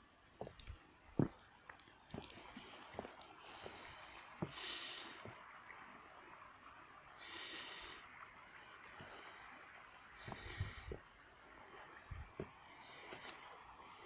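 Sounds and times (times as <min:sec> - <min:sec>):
footsteps on wooden sleepers: 0:00.4 - 0:05.4, 0:10.2 - 0:11.1, 0:12.1 - 0:13.4.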